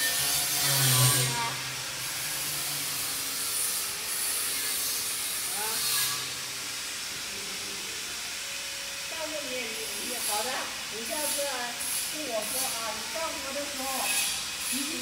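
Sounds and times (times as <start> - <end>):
hissing factory noise: 0.0 - 15.0.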